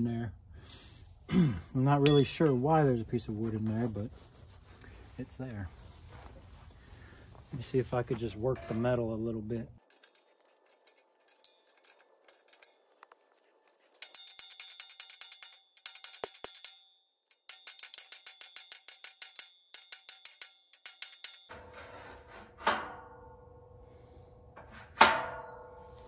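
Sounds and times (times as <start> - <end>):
hammer tapping steel rack: 2.1 - 2.6, 14.0 - 21.6
heavy metal clanging strike: 2.1 - 2.6.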